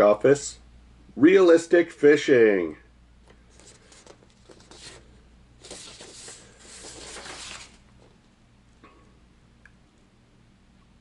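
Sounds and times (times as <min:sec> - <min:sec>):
paper rustling: 0:03.5 - 0:08.2.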